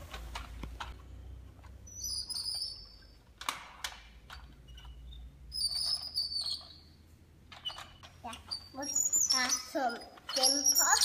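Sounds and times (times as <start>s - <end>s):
plastic toy clicks and knocks: 3.3s - 5.0s.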